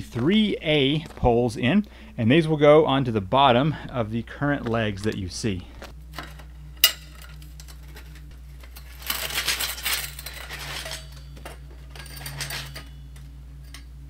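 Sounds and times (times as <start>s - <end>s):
metal poles clinking and scraping: 6.2s - 13.9s.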